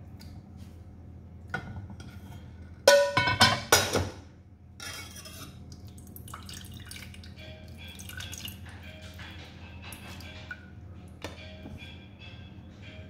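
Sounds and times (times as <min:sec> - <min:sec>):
metal cookware clanging: 0:01.6 - 0:04.2.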